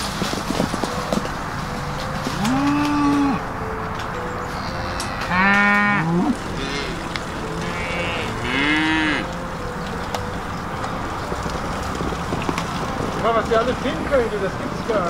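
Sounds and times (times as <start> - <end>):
cattle mooing: 2.3 - 3.5, 4.5 - 9.4
higher cattle calls: 2.3 - 3.5, 4.5 - 9.3.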